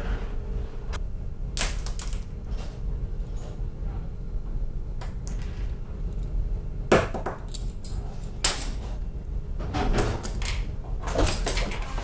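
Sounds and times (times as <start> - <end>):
steady low hum: 0.0 - 12.0
items clattering on hard floor: 9.6 - 12.0.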